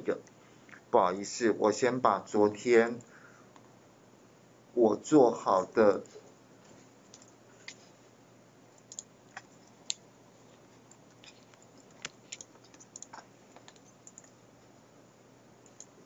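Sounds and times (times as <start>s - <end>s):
computer keys and mouse clicking: 7.1s - 7.8s, 8.8s - 10.0s, 10.9s - 14.4s, 15.6s - 16.0s
fast typing on keyboard: 11.8s - 14.4s.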